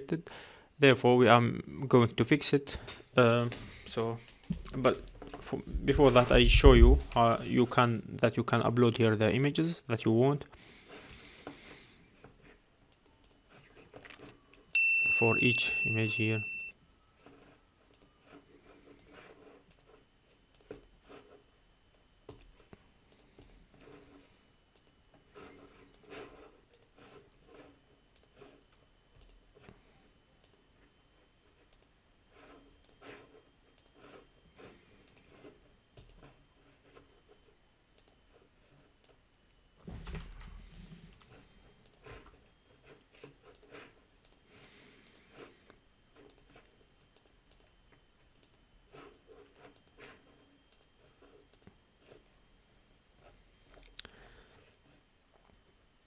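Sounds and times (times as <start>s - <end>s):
computer mouse clicks: 12.9s - 13.5s, 17.9s - 18.2s, 18.9s - 21.0s, 22.3s - 23.6s, 24.7s - 25.0s, 25.8s - 27.0s, 28.1s - 28.4s, 29.1s - 29.4s, 30.4s - 30.6s, 31.6s - 32.0s, 33.8s - 34.2s, 35.0s - 35.3s, 36.0s - 36.3s, 37.9s - 38.2s, 40.7s - 42.1s, 43.4s - 45.4s, 46.2s - 50.1s, 50.7s - 50.9s, 51.5s - 51.8s.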